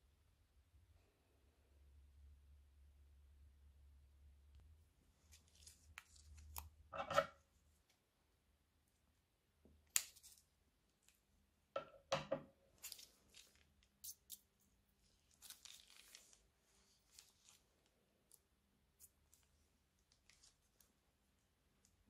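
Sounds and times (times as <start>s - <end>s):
plastic bag crinkling: 12.8s - 14.1s, 15.3s - 17.9s.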